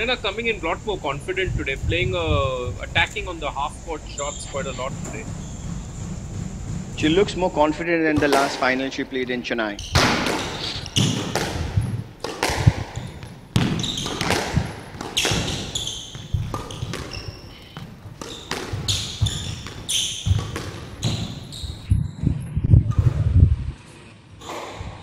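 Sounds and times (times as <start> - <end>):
shoes squeaking on wooden floor: 3.0 - 8.8, 9.7 - 21.9
squash ball hitting rackets and walls: 8.1 - 9.0, 9.8 - 21.8, 24.4 - 25.0.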